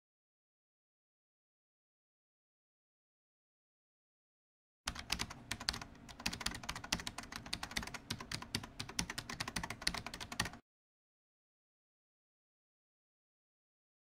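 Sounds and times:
keyboard typing clicks: 4.9 - 10.6.

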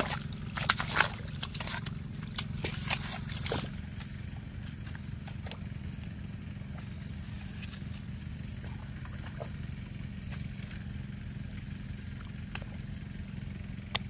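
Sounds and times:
hoe chopping and scraping mud: 0.0 - 5.9
steady low rumble: 0.0 - 14.0.

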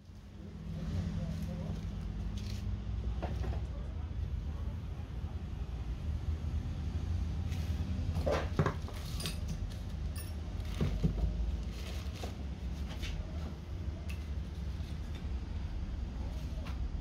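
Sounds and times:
metal tools clinking: 8.9 - 10.8.

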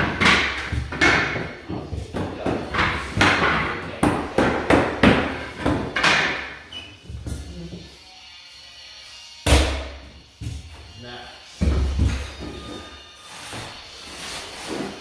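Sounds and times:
flooring nailer bangs: 9.5 - 10.0.

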